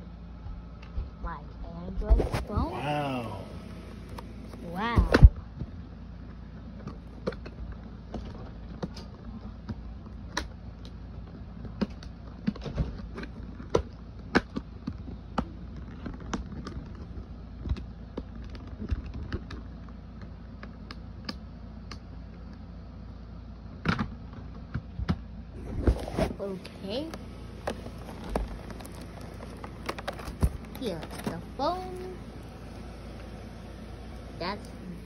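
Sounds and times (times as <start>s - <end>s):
low steady hum: 0.0s - 35.0s
packaging handling clicks and taps: 26.6s - 33.6s.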